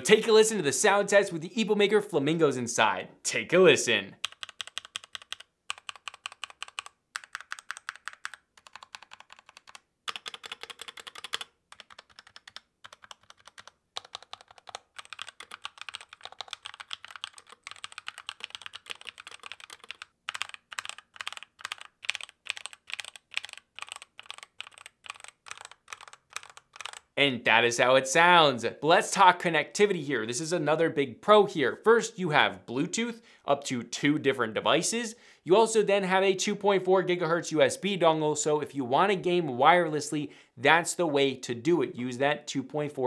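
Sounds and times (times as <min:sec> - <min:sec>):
mechanical keyboard typing: 0:04.2 - 0:27.1.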